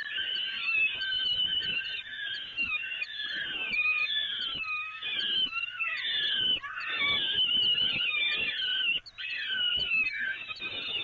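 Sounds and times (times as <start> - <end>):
falcon chicks begging calls: 0.0 - 11.0.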